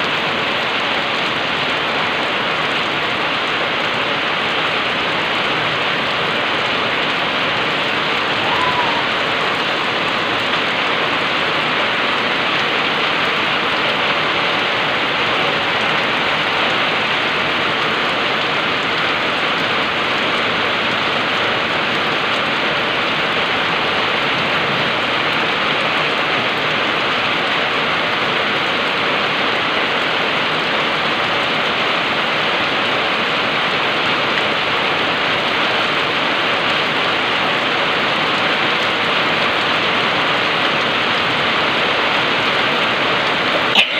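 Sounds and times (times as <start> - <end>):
heavy rain on wet street: 0.0 - 43.9.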